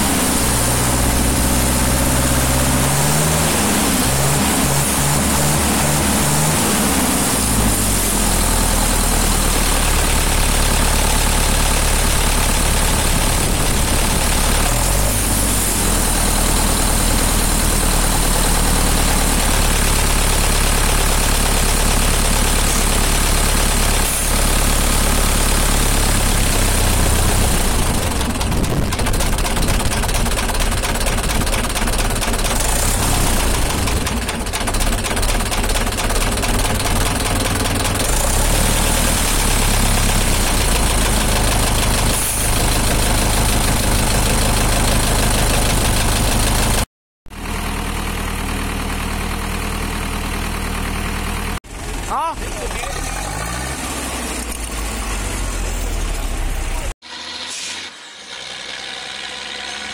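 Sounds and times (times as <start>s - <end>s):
diesel tractor engine idling: 7.5s - 54.1s.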